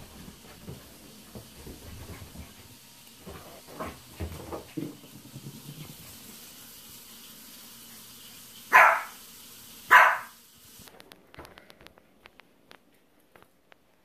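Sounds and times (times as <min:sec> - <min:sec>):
puppy barking: 0:08.7 - 0:09.2, 0:09.9 - 0:10.4.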